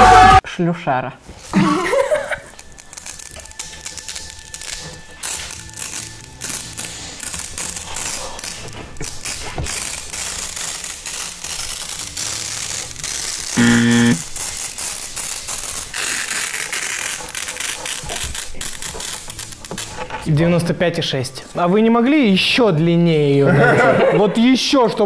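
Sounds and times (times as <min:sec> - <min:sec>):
tape peeling and crackling: 0:01.3 - 0:20.4.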